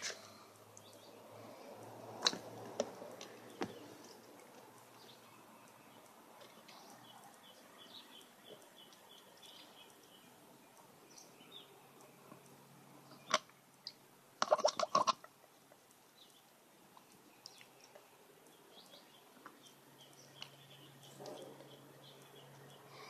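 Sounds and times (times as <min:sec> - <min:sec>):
bird chirps: 0:05.0 - 0:14.0, 0:17.3 - 0:23.0.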